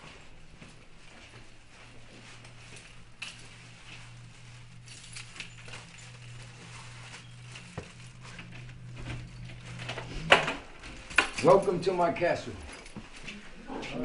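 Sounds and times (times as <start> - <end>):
low hum: 1.6 - 13.8
keys jingling in door lock: 4.8 - 6.6, 8.5 - 11.9.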